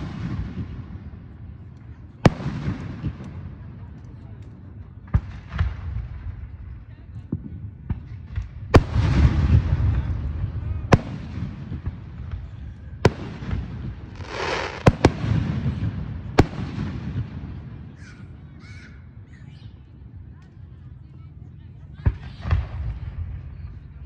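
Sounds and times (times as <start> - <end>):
fireworks booming: 0.0 - 1.3, 7.4 - 18.1
fireworks hissing crackle: 14.0 - 15.7.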